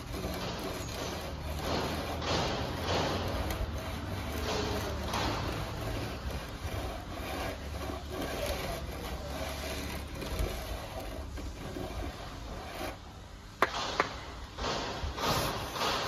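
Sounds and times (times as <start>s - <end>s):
trowel scraping plaster: 0.0s - 13.3s, 14.6s - 16.0s
sharp knock: 13.6s - 16.0s.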